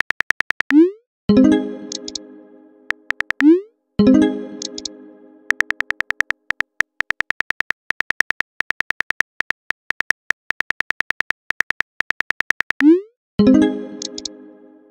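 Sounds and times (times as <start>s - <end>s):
electronic keyboard clicks: 0.0s - 0.9s, 1.9s - 2.2s, 2.9s - 3.6s, 4.6s - 13.0s, 14.0s - 14.9s.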